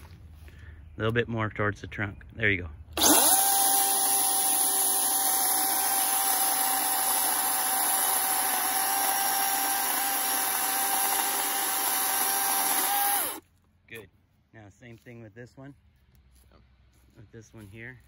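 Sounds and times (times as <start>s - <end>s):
electric chainsaw cutting wood: 3.0s - 13.4s.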